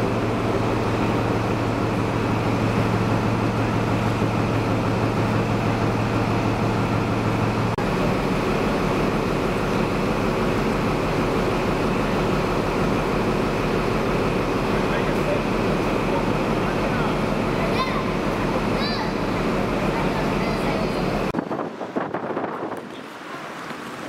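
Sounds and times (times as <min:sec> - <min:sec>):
passenger train running: 0:00.0 - 0:24.0.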